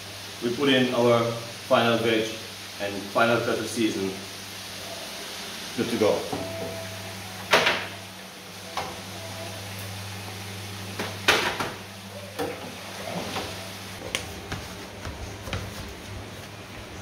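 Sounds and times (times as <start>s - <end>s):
knocks and clatters of fryer basket: 7.5s - 8.0s, 10.9s - 11.8s.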